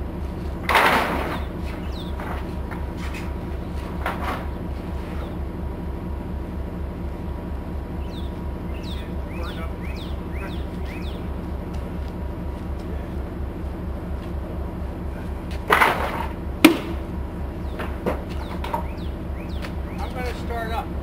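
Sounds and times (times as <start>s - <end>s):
low pulsing throb: 0.0s - 21.0s
wooden boards clattering and scraping: 0.6s - 5.3s, 15.5s - 17.0s
sharp wooden knock: 16.6s - 17.0s.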